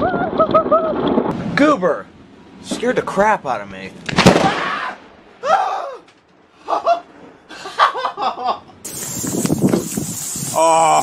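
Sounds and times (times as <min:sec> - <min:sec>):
person laughing: 0:00.0 - 0:01.0, 0:06.6 - 0:08.7, 0:10.6 - 0:11.0
steady hiss: 0:08.8 - 0:11.0.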